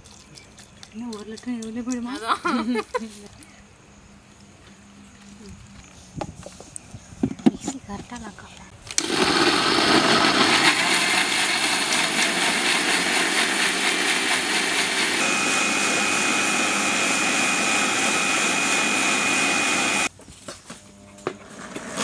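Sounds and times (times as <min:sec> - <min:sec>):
mixer grinder running: 0:09.0 - 0:20.1.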